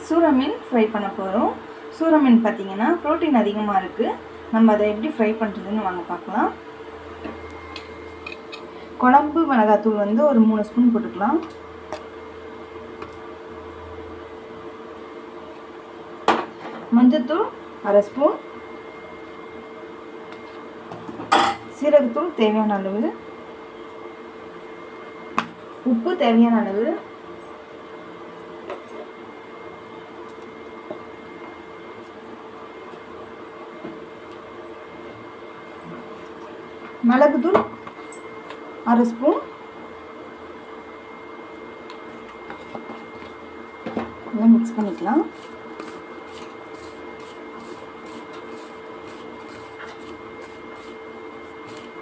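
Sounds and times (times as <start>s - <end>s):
machine hum with whine: 0.0s - 52.0s
fingers rubbing spice powder: 44.9s - 52.0s.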